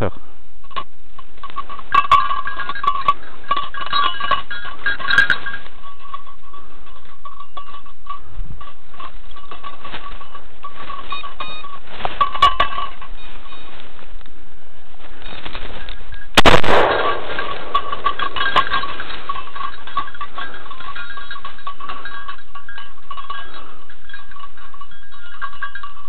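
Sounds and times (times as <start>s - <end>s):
dog collar bell jingling: 1.2s - 13.4s, 17.2s - 26.0s
twigs and leaves rustling: 9.0s - 22.1s.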